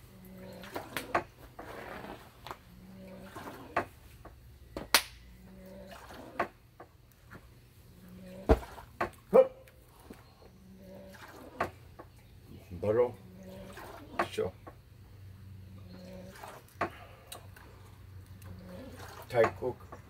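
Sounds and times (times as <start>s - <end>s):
sharp hand slaps: 4.9s - 5.2s.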